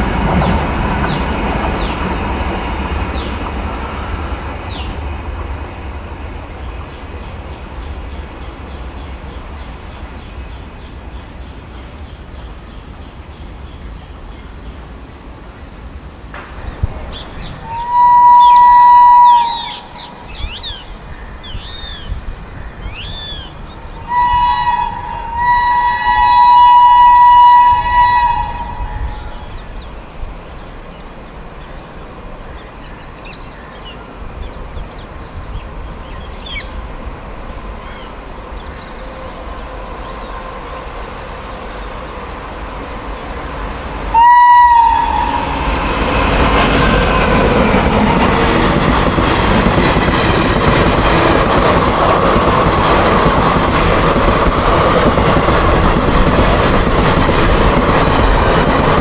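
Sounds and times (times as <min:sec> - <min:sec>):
passing train rumble: 0:00.0 - 0:59.0
birds chirping: 0:16.6 - 0:25.8, 0:28.5 - 0:44.2
train horn blasts: 0:17.6 - 0:20.2, 0:24.0 - 0:29.8, 0:38.6 - 0:42.6, 0:44.1 - 0:48.2.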